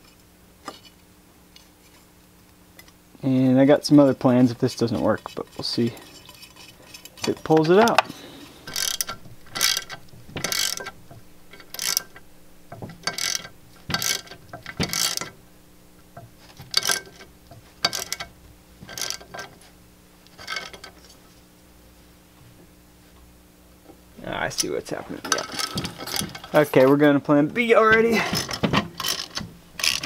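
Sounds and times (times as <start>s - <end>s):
ratchet wrench clicking: 8.6s - 10.9s, 11.5s - 12.2s, 13.0s - 15.3s.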